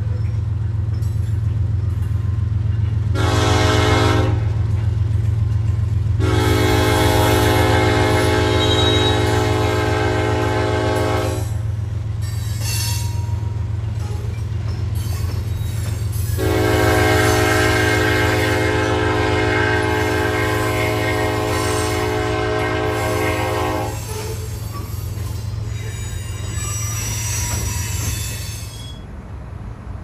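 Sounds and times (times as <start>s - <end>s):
deep rumble of passing train: 0.0s - 30.0s
locomotive air horn chord: 3.2s - 4.5s, 6.2s - 11.6s, 16.4s - 24.0s
faint high wheel squeal: 8.5s - 9.4s, 12.2s - 16.4s, 23.1s - 29.1s.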